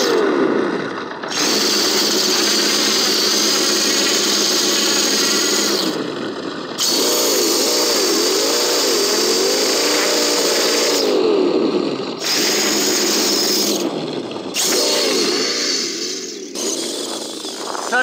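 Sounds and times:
electric motor whining: 0.0s - 18.0s.

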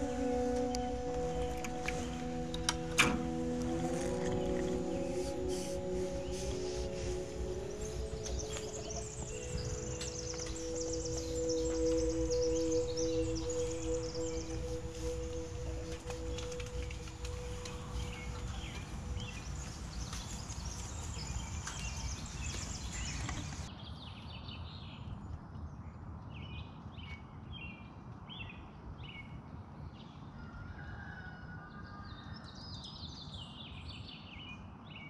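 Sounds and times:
small birds chirping: 3.8s - 24.4s
crackling clicks: 15.0s - 18.8s.

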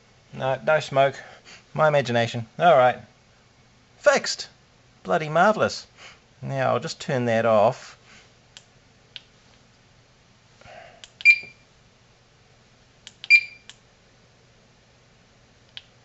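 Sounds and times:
short high beeps: 13.3s - 13.7s.

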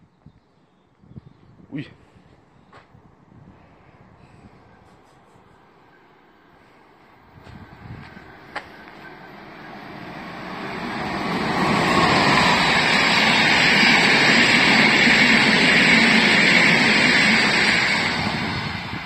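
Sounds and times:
train wheels rushing on rails: 7.0s - 19.0s.

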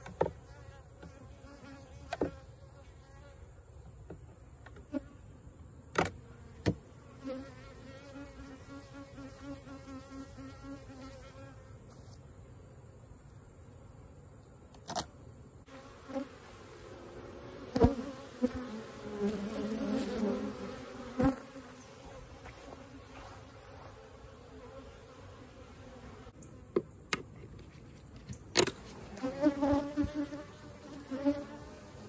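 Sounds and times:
honeybees buzzing: 6.0s - 11.8s, 15.6s - 26.8s, 28.7s - 32.0s.

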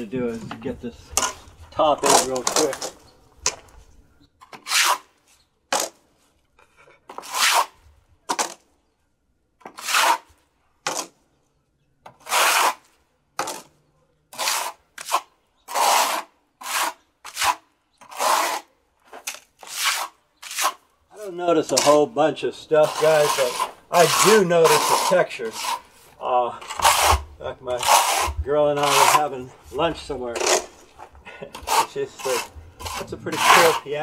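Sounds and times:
trowel scraping on wall: 0.4s - 3.0s, 4.4s - 6.0s, 6.8s - 8.6s, 9.6s - 11.2s, 12.1s - 34.0s.

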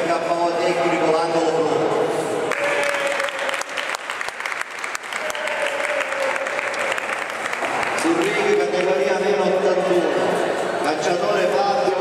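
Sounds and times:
crowd applauding: 2.5s - 9.2s.

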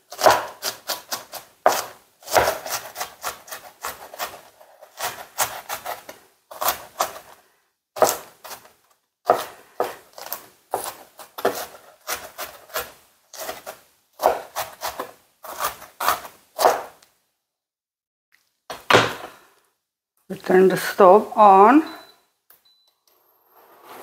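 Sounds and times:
knife chopping on cutting board: 0.1s - 7.2s, 8.0s - 8.7s, 9.3s - 17.0s.

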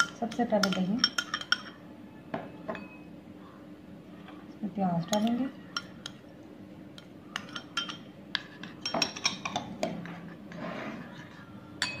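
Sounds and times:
spoon clinking on ceramic bowl: 0.0s - 1.8s, 7.0s - 9.9s, 11.8s - 12.0s.

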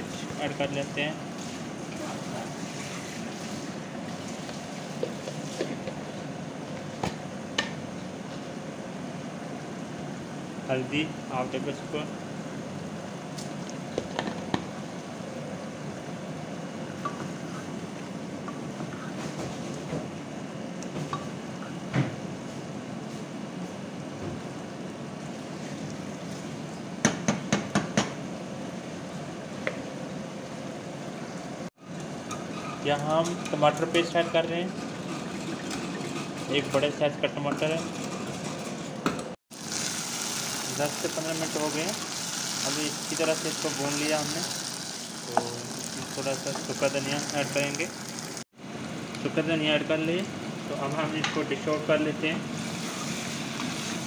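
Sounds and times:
steady hiss: 39.5s - 48.4s
liver sizzling in oil: 39.5s - 48.5s, 52.6s - 54.0s.

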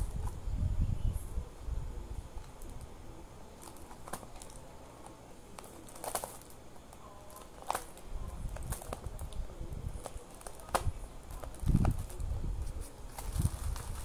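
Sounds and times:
plastic wrapping crinkling: 3.6s - 14.0s.

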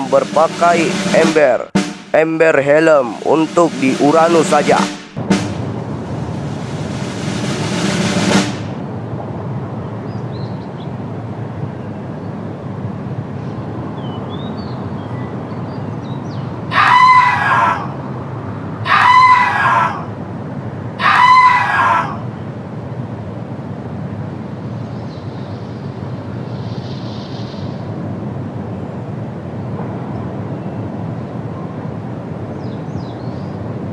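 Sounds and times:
rushing noise: 0.0s - 14.0s
steady background noise: 0.0s - 33.9s
crowing shriek sound effect: 16.7s - 18.0s, 18.8s - 20.1s, 21.0s - 22.3s.

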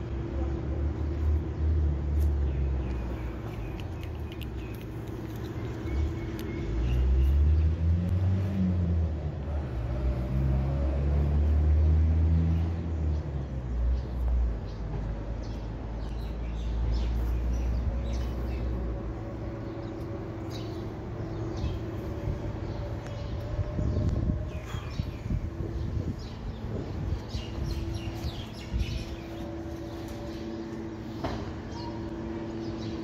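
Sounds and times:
vehicle engine rumble: 0.0s - 33.0s
cat crunching dried fish: 2.9s - 6.6s.

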